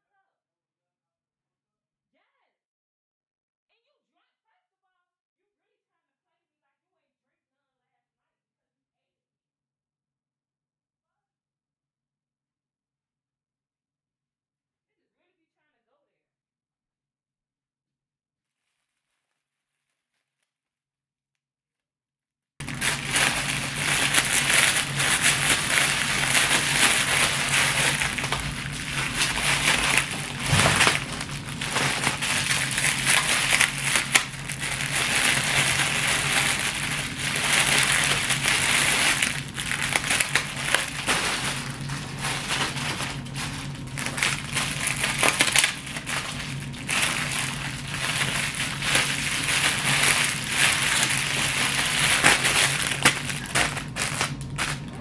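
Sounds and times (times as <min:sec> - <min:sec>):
plastic packs crinkling: 0:22.6 - 0:55.0.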